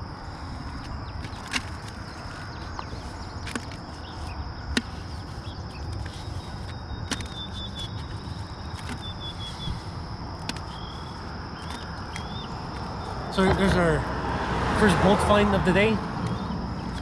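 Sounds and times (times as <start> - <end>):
low wind noise: 0.0 - 17.0
faint bird chirps: 2.1 - 10.0, 10.6 - 13.4.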